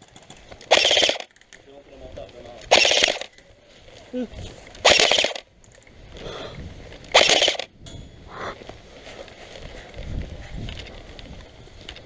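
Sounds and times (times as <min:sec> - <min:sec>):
rapid airsoft gun fire: 0:00.7 - 0:01.3, 0:02.7 - 0:03.3, 0:04.8 - 0:05.5, 0:07.1 - 0:07.7.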